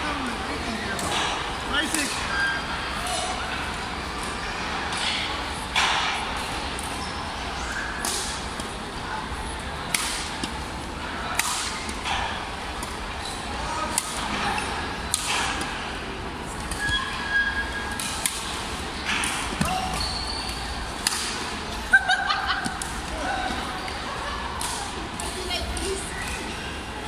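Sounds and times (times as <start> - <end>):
rackets hitting shuttlecock: 8.0 - 8.8, 9.8 - 10.6, 11.3 - 16.0, 17.9 - 21.6, 22.6 - 23.6, 24.6 - 25.4.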